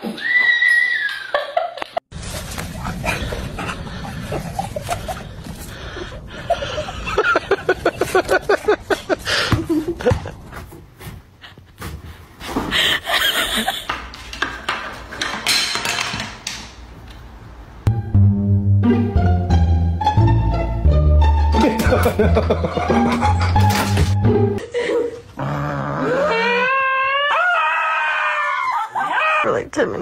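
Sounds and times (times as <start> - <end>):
person laughing hard: 2.9 - 10.4, 12.8 - 13.9, 21.6 - 25.2.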